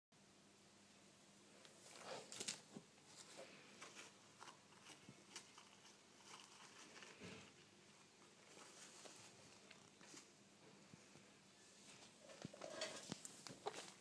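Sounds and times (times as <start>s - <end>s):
rustling and scratching in bedding: 1.7s - 10.4s.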